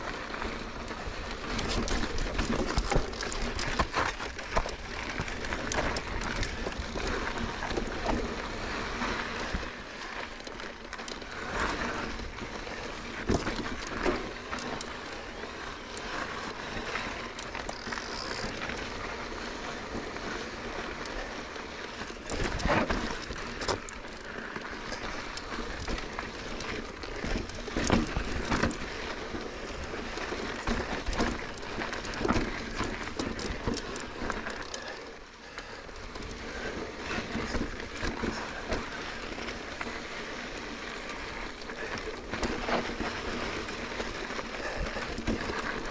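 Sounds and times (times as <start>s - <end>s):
bike tyres rushing on trail: 0.0s - 45.9s
bike clattering over rocks: 1.5s - 8.4s, 22.1s - 34.8s.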